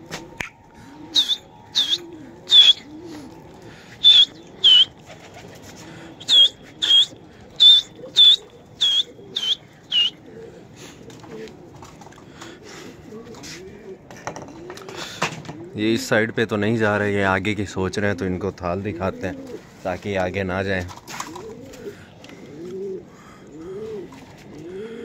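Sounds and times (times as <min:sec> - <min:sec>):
pigeons cooing: 0:00.0 - 0:16.4, 0:17.9 - 0:19.8, 0:20.9 - 0:25.0
sharp high whistles: 0:00.4 - 0:02.9, 0:04.0 - 0:04.9, 0:06.2 - 0:10.2.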